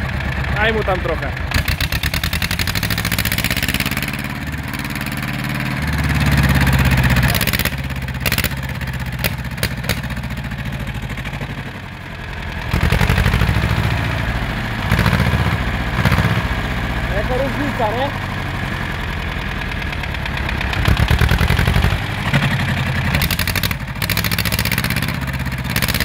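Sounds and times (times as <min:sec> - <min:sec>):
tractor diesel engine revving: 0:00.0 - 0:26.0
sharp clicks: 0:07.2 - 0:10.2, 0:23.2 - 0:25.0.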